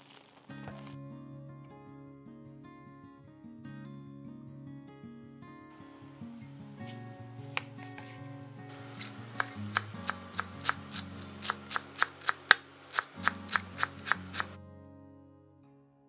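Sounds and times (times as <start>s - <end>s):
knife chopping on wooden board: 8.7s - 14.6s.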